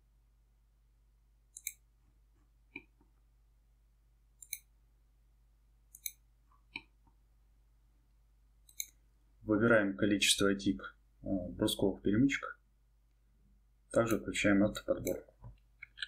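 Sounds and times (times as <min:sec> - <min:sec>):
computer mouse clicks: 0:01.5 - 0:01.9, 0:04.4 - 0:04.7, 0:05.9 - 0:07.2, 0:08.6 - 0:09.0.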